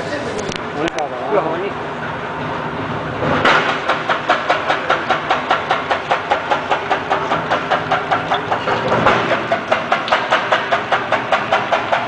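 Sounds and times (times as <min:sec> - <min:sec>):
blade clacking through potato: 0:03.5 - 0:12.0.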